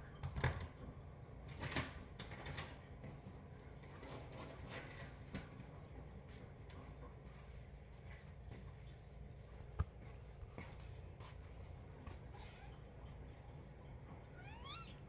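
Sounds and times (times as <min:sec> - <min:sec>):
faint clicks of cats moving: 0:01.5 - 0:12.6.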